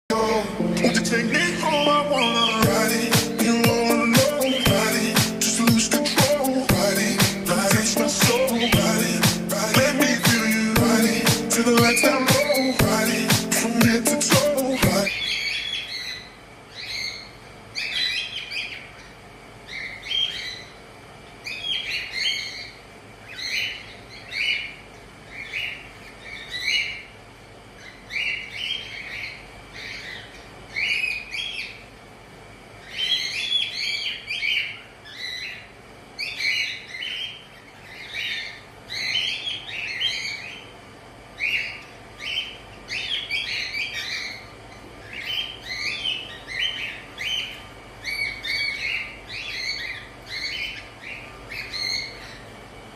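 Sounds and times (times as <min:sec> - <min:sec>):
cockatiels chirping: 0:19.7 - 0:20.7, 0:41.4 - 0:52.5.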